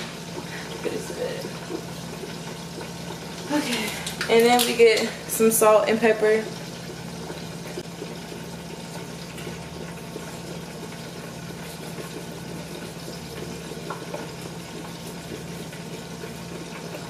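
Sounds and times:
food sizzling on stovetop: 0.0s - 17.0s.

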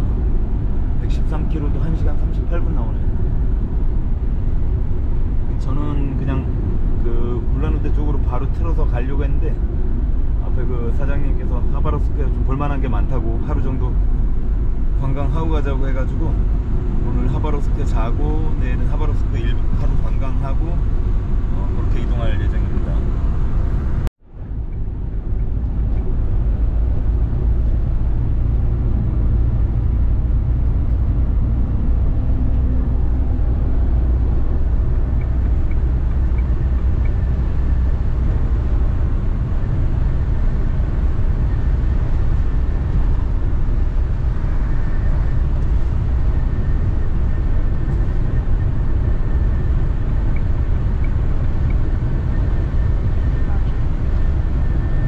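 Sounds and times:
van engine and road rumble: 0.0s - 55.0s.

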